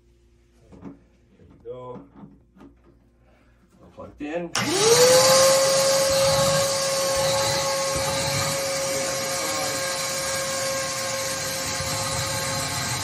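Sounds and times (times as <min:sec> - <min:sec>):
shop vac motor whine: 0:04.6 - 0:13.0.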